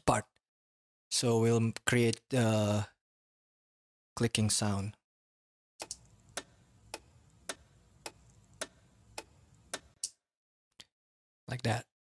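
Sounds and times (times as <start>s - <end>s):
clock-like ticking clicks: 5.8s - 10.2s.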